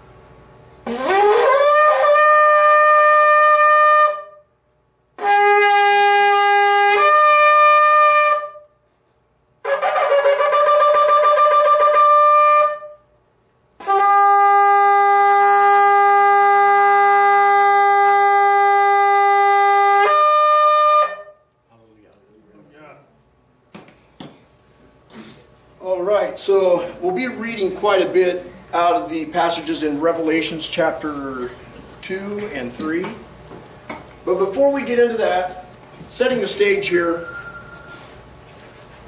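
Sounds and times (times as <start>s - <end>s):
shofar blasts: 0.8s - 4.6s, 5.2s - 8.9s, 9.6s - 13.2s, 13.8s - 21.5s.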